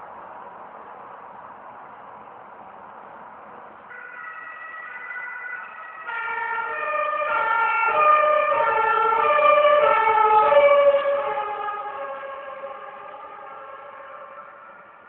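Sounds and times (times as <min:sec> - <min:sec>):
two-tone siren passing: 0:03.9 - 0:15.0.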